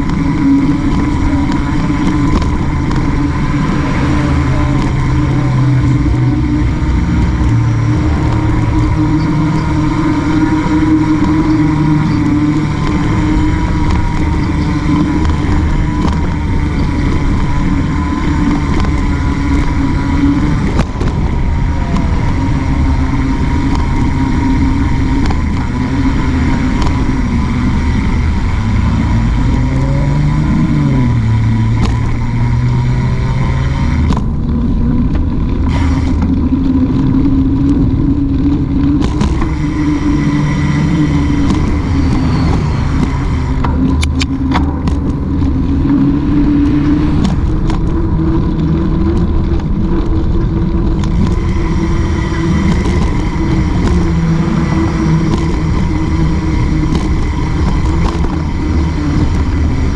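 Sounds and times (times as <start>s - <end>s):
passing engine: 0.0s - 59.9s
road traffic: 0.0s - 59.9s
wind on microphone: 0.0s - 59.9s.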